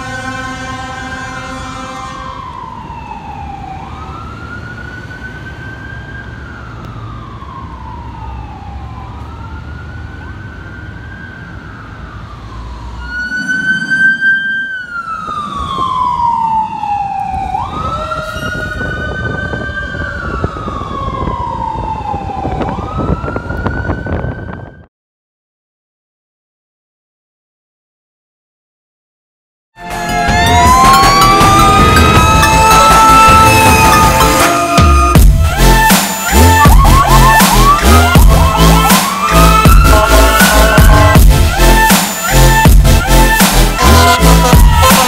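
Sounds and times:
fire engine horn blast: 0:00.0 - 0:02.6, 0:29.8 - 0:45.0
truck and traffic rumble: 0:00.0 - 0:24.8, 0:29.8 - 0:45.0
wailing siren: 0:00.0 - 0:24.9, 0:29.8 - 0:45.0.

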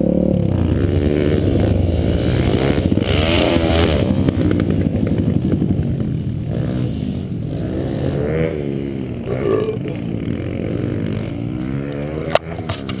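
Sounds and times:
pit bike engine revving: 0:00.0 - 0:13.0.

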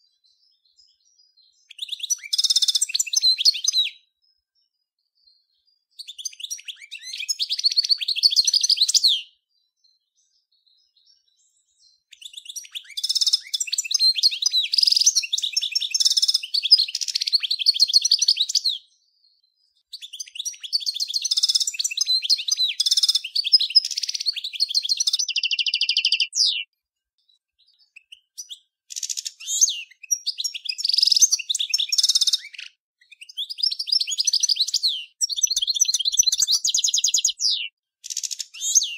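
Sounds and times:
goldfinch twittering song: 0:00.0 - 0:38.9.

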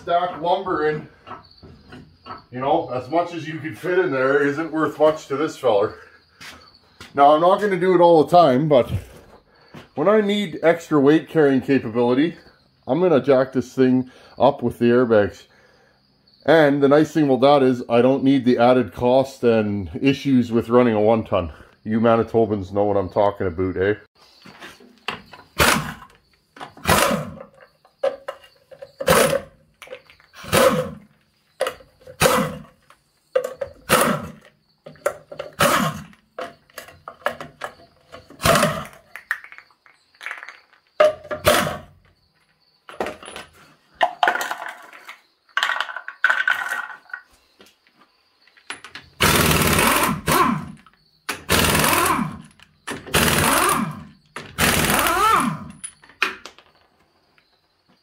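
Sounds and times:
impact wrench hammering: 0:49.2 - 0:52.4, 0:53.0 - 0:55.7.

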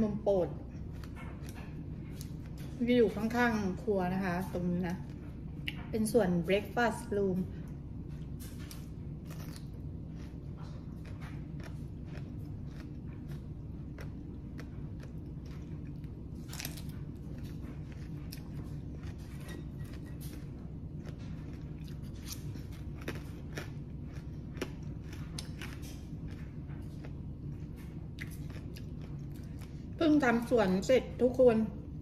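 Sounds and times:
steady low hum: 0:00.0 - 0:32.0
person chewing crunchy food: 0:00.6 - 0:02.8, 0:07.7 - 0:30.0.

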